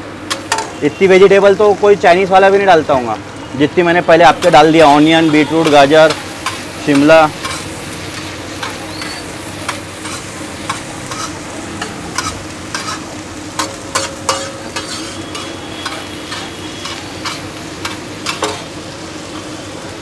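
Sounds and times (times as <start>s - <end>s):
vegetables sizzling on pan: 0.0s - 20.0s
metal spatulas clacking on pan: 13.6s - 18.7s.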